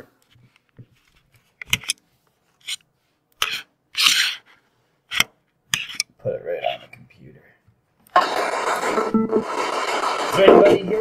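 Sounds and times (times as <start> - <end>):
handling clicks and rustling scrapes: 0.2 - 6.1.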